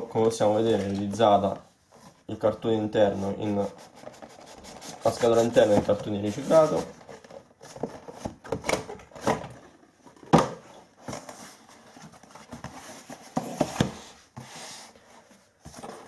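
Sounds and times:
cardboard rubbing and scraping: 3.0s - 8.4s, 11.1s - 16.0s.

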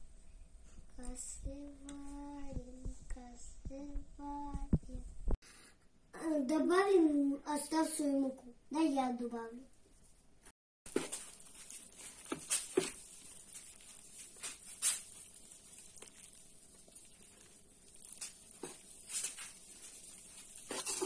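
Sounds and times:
spoon stirring dough in bowl: 10.9s - 21.0s.

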